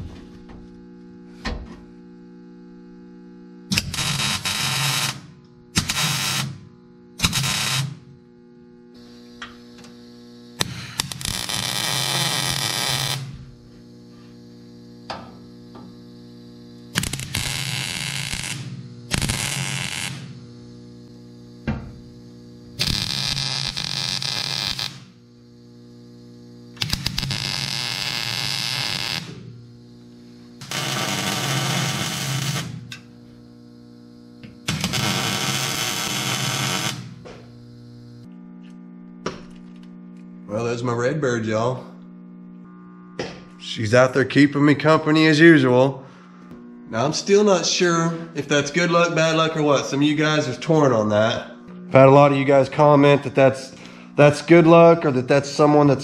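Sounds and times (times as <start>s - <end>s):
steady low hum: 0.0s - 56.0s
welding arc crackling: 2.0s - 45.9s, 46.9s - 56.0s.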